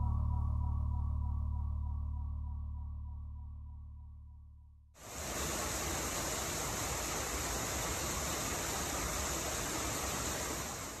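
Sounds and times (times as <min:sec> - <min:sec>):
small waterfall spilling: 0:05.0 - 0:11.0
stream water rushing: 0:05.0 - 0:11.0.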